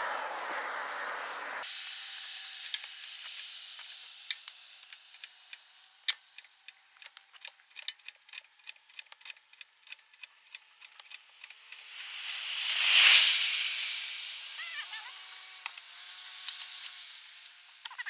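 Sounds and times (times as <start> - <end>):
faint hiss: 1.2 - 6.2, 11.7 - 17.9
metallic clicks of hoist pump: 3.8 - 11.8.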